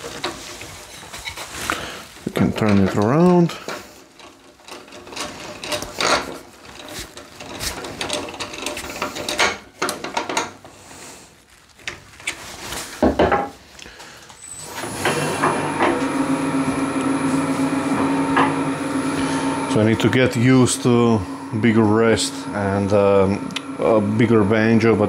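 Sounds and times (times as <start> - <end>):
lathe motor humming: 14.6 - 25.0
faint high whine: 16.0 - 25.0.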